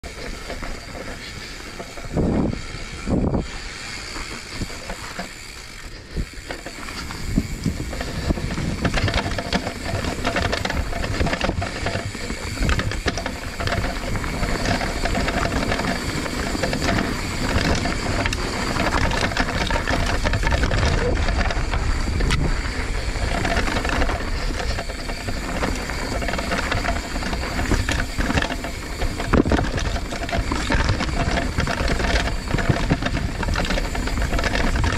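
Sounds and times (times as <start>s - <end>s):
bike chain and frame rattling: 0.0s - 34.9s
bike tyres rolling over rock: 0.0s - 34.9s.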